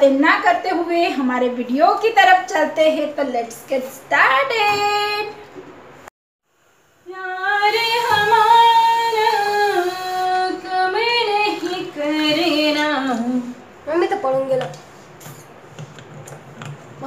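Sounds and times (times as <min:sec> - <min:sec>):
woman singing: 0:04.3 - 0:05.4, 0:07.0 - 0:13.6.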